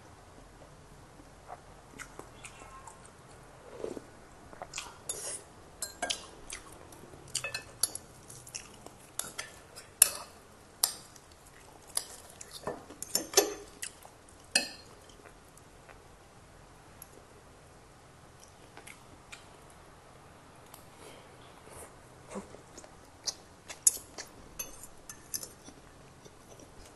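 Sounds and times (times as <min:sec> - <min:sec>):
chewing: 0:01.5 - 0:05.4, 0:06.1 - 0:10.0.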